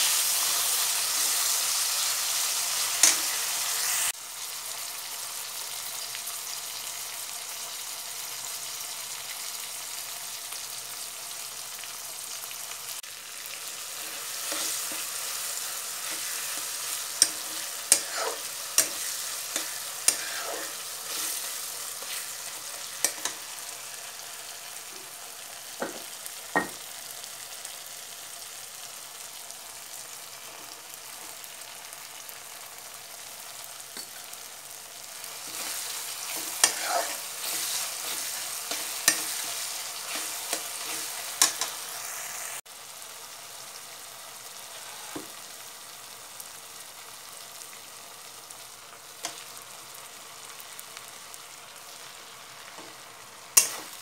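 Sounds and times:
food sizzling in a pan: 0:00.0 - 0:54.0
utensil scraping against pan: 0:14.0 - 0:15.3, 0:16.0 - 0:23.5, 0:35.4 - 0:41.8.

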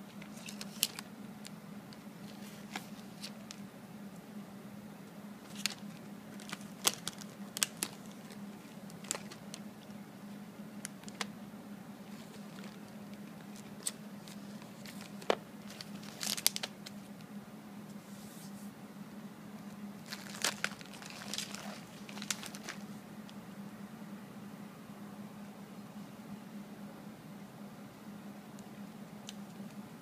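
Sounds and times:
steady low hum: 0:00.0 - 0:30.0
plastic wrappers crinkling and clicking: 0:00.1 - 0:03.6, 0:05.4 - 0:10.0, 0:10.8 - 0:11.3, 0:12.1 - 0:17.1, 0:20.0 - 0:23.0.

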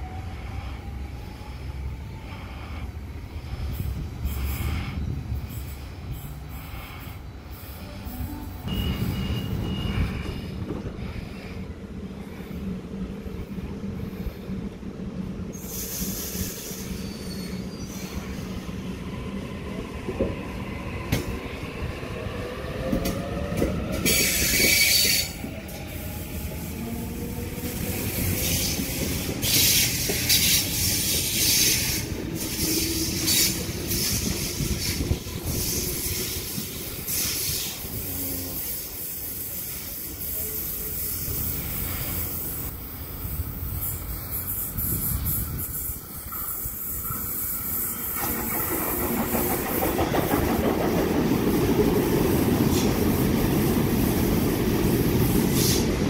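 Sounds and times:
train wheels squealing: 0:03.8 - 0:10.8, 0:15.5 - 0:19.8, 0:22.8 - 0:26.5, 0:27.6 - 0:51.0.

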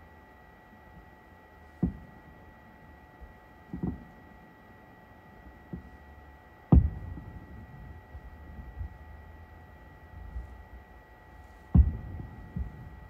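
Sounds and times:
distant firework booms: 0:11.8 - 0:13.0.

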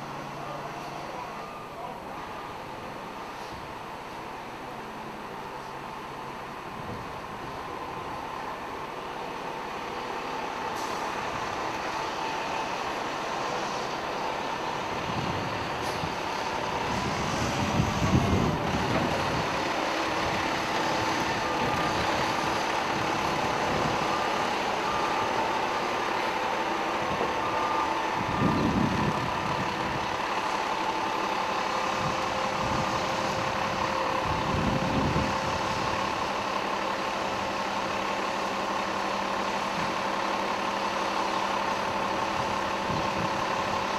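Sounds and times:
reversing alarm beeping: 0:00.0 - 0:02.8, 0:18.9 - 0:33.2
diesel engine revving: 0:00.0 - 0:43.9.

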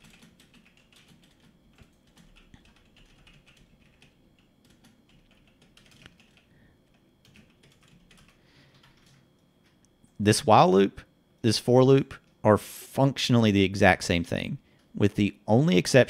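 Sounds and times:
keyboard typing: 0:00.0 - 0:09.8.

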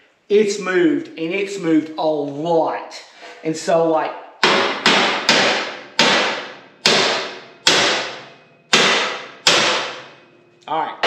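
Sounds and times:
hammer ringing on steel: 0:04.4 - 0:10.4.

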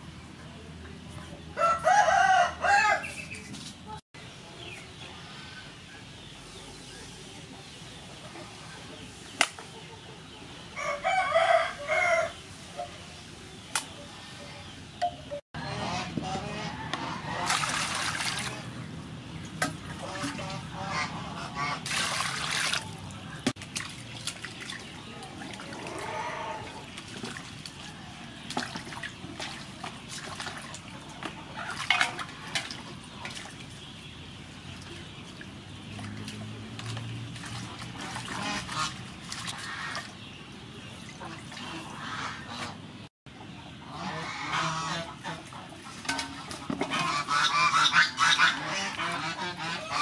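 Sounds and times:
water splashing in a metal basin: 0:17.2 - 0:21.0, 0:21.6 - 0:42.5, 0:45.1 - 0:50.0.

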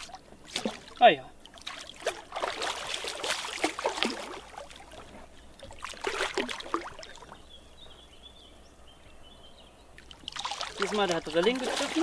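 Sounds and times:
fish splashing at water surface: 0:00.0 - 0:05.0, 0:05.6 - 0:07.3, 0:10.0 - 0:12.0.

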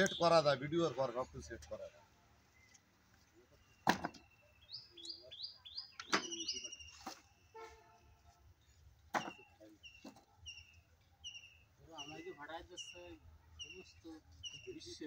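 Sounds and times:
small bird chirping: 0:03.6 - 0:07.4, 0:09.4 - 0:15.0.

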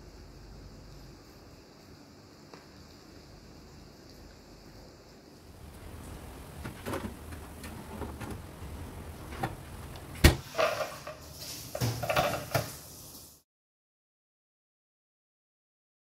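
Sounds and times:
baking tin clattering: 0:05.8 - 0:12.8.

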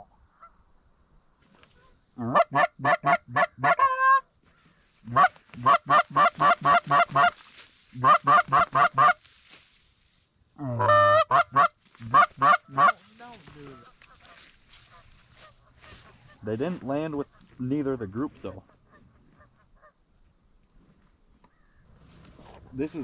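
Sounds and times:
goose call clucks: 0:01.8 - 0:04.3, 0:05.0 - 0:09.3, 0:10.6 - 0:16.5.

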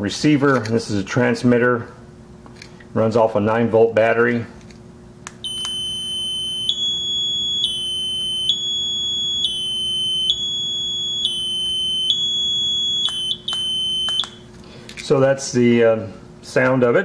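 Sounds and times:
two-tone piezo buzzer: 0:05.4 - 0:14.4.

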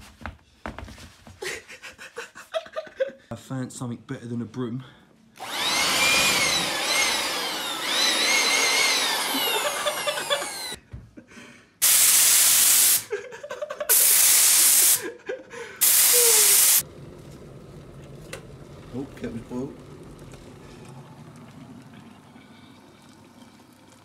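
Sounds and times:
electric blower motor whine: 0:05.4 - 0:10.8
spray gun hissing bursts: 0:11.8 - 0:13.1, 0:13.9 - 0:15.0, 0:15.8 - 0:16.8.

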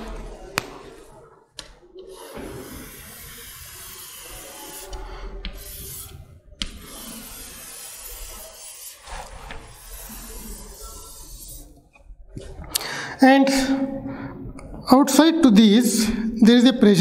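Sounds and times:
chalk scraping on blackboard: 0:02.1 - 0:11.8
chalk tapping on board: 0:02.3 - 0:11.6.

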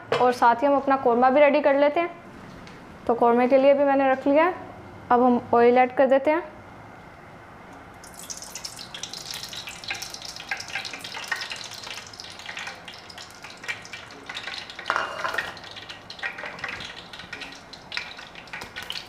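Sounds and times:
oil crackling and spitting: 0:08.0 - 0:19.0
oil pouring into a pot: 0:08.0 - 0:19.0.

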